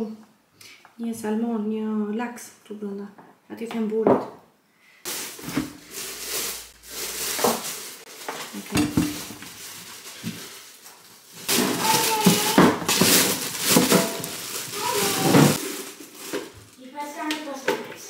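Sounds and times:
kitchen items clattering: 0:05.1 - 0:16.7
packaging rustling and crinkling: 0:05.1 - 0:16.8.

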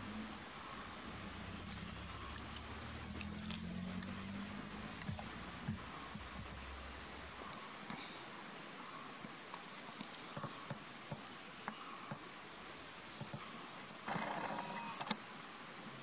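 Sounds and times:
low steady hum: 0:00.0 - 0:10.7
insects or birds chirping: 0:00.0 - 0:16.0.

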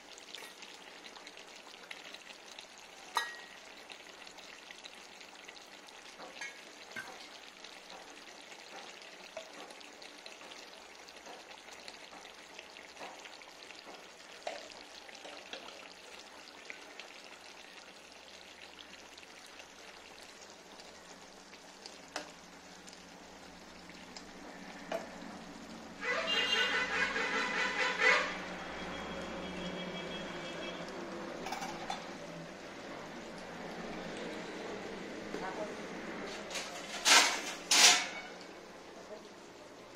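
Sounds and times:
low sizzle: 0:00.0 - 0:39.9
spoon tapping pot: 0:03.2 - 0:03.6.

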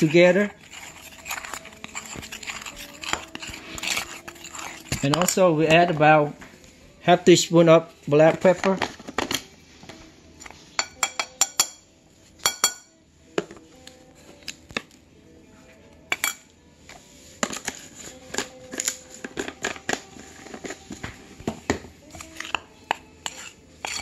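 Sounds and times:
spoon stirring dry flour: 0:00.0 - 0:11.8, 0:16.1 - 0:24.0
metal spoon clinking on bowl: 0:10.8 - 0:11.8, 0:12.4 - 0:12.9, 0:16.1 - 0:16.4, 0:22.4 - 0:24.0.

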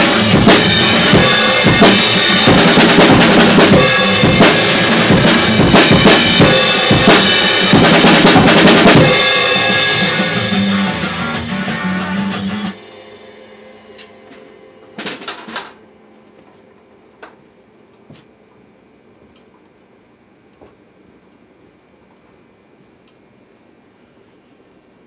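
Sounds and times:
drum kit played hard: 0:00.0 - 0:15.9
cymbals ringing: 0:00.0 - 0:16.2.

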